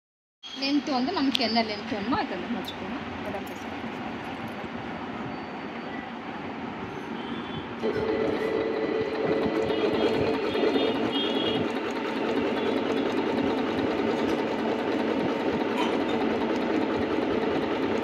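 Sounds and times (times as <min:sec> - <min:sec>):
sewing machine stitching: 0:07.8 - 0:18.0.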